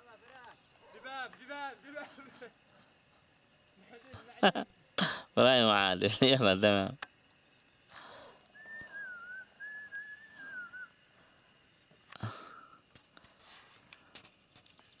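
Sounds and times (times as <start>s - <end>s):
person whistling a tune: 8.6s - 10.9s.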